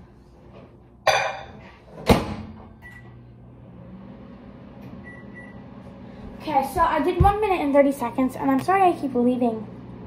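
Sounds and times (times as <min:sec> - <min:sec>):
microwave oven humming: 0:00.0 - 0:10.0
microwave door banging shut: 0:02.0 - 0:02.6.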